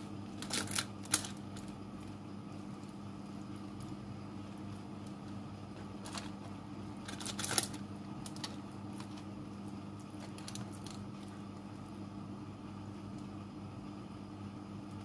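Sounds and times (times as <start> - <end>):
aluminium foil crinkling: 0.0 - 11.6
low electrical hum: 0.0 - 15.0.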